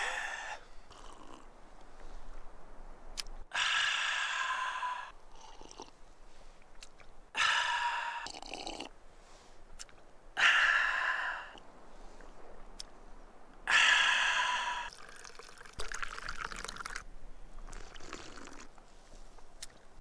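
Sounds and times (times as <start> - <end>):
man breathing out hard: 0.0 - 0.9, 3.5 - 5.2, 7.3 - 8.3, 10.4 - 11.6, 13.7 - 15.0
man drinking from cup: 0.0 - 1.5, 5.3 - 6.0, 6.8 - 8.9, 14.9 - 17.0, 17.6 - 18.9.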